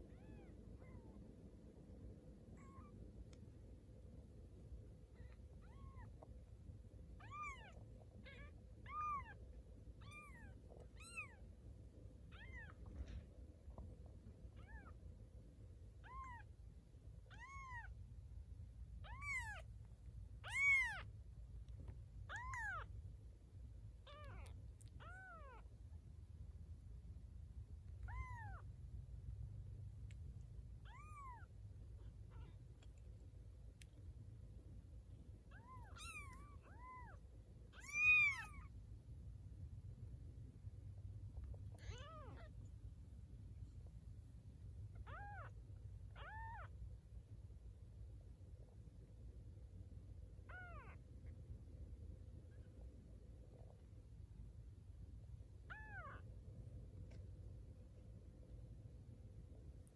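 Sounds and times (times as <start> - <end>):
kittens mewing: 19.0 - 19.6, 20.4 - 21.1, 22.3 - 22.9, 28.0 - 28.6, 35.5 - 37.2, 37.8 - 38.7, 45.0 - 45.5, 46.2 - 46.7, 50.5 - 51.0, 55.7 - 56.2.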